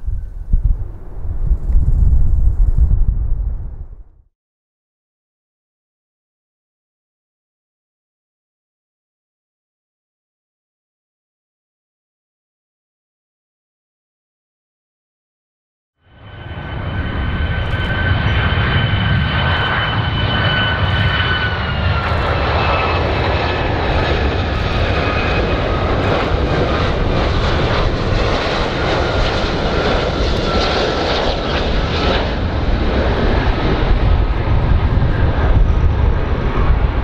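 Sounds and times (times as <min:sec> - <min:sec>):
jet engine whine: 0:00.0 - 0:04.2, 0:16.0 - 0:37.0
deep jet rumble: 0:00.0 - 0:04.3, 0:16.1 - 0:37.0.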